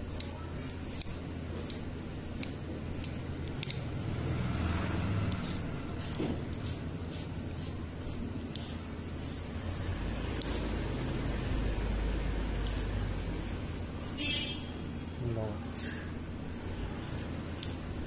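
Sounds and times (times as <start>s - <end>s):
steady low hum: 0.0s - 18.0s
metal blade scraping wire: 5.3s - 9.4s.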